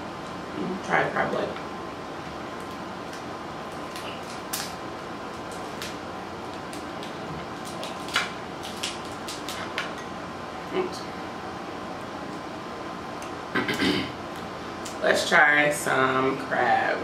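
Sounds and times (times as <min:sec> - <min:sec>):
crab shells cracking: 0:02.6 - 0:09.9.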